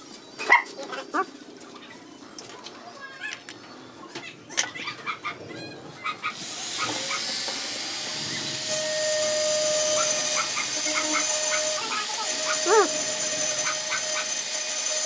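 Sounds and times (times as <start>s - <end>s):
thin steady whine: 6.4s - 15.0s.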